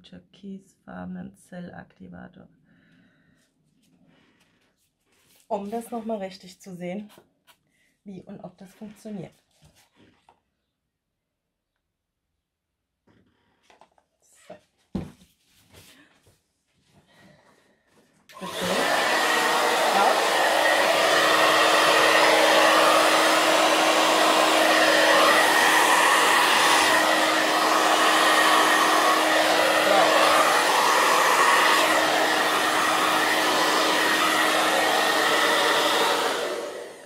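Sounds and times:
hair dryer blowing air: 18.3 - 37.0.

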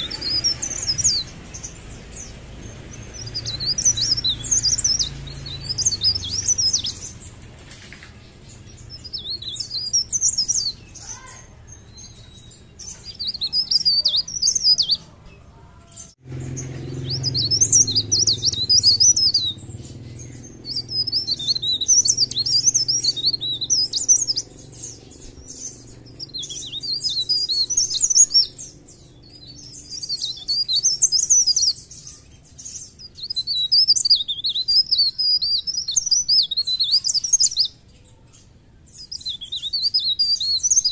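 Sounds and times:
warbler singing: 0.0 - 40.9.

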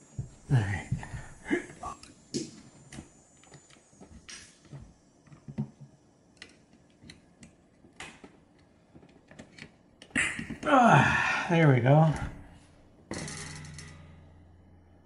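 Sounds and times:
metal spring clicks and taps: 13.1 - 14.2.

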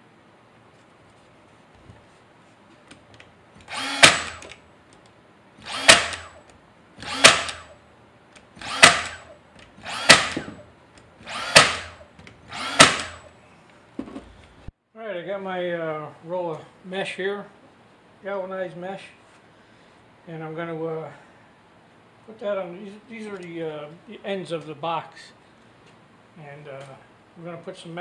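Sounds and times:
brad nailer shots: 3.6 - 4.6, 5.6 - 7.8, 8.4 - 13.3.

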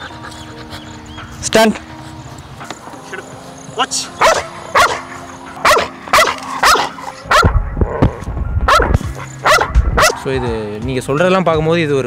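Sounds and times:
dog barking sharply: 4.2 - 5.0, 5.6 - 7.5, 8.7 - 10.2.

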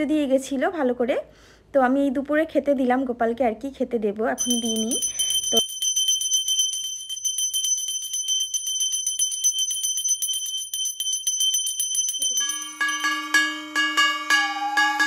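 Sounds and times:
brass hand bell ringing: 4.4 - 15.0
brass gong plate beaten: 12.4 - 15.0.

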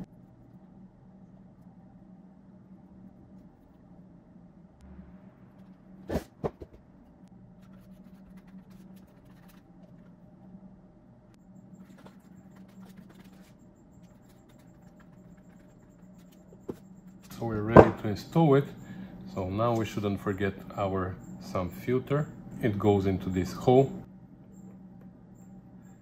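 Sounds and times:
faint steady hum: 0.0 - 26.0
brush scratching and tapping: 7.6 - 10.1.

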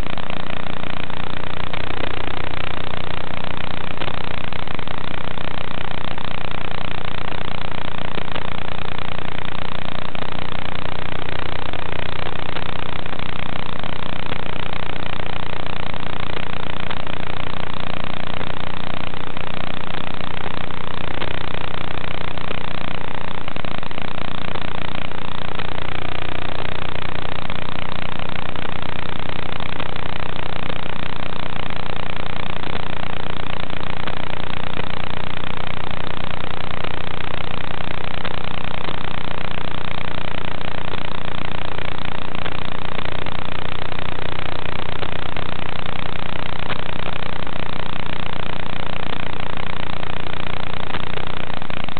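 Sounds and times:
low buzzing hum: 0.0 - 51.9
steady hiss: 0.0 - 51.9.

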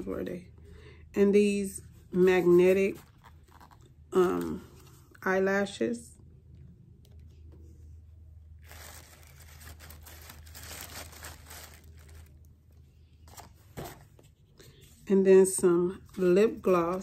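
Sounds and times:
plastic packaging rustling and crinkling: 2.4 - 4.9, 8.6 - 14.2.

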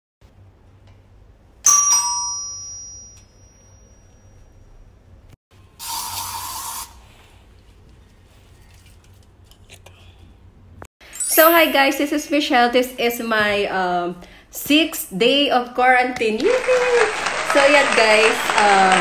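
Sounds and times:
doorbell chime: 1.7 - 4.5
aerosol spray hissing: 5.8 - 7.0.

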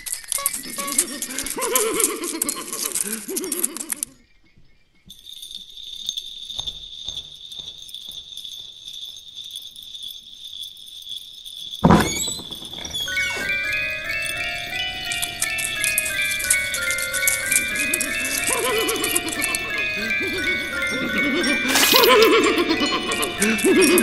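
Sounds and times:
music-box-like chiming notes: 11.8 - 24.0.

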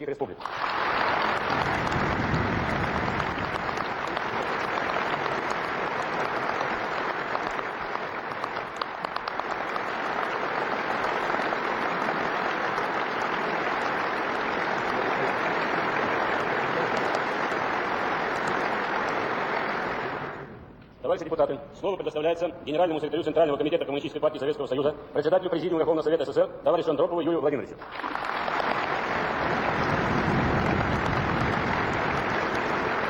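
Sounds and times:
crowd applauding: 0.4 - 20.6, 27.8 - 33.0.

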